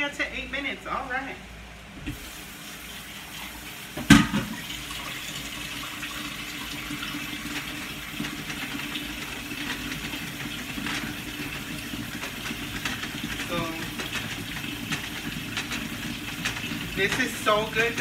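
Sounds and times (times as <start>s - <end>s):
food sizzling and bubbling in a skillet: 2.1s - 18.0s
spatula stirring: 6.4s - 18.0s.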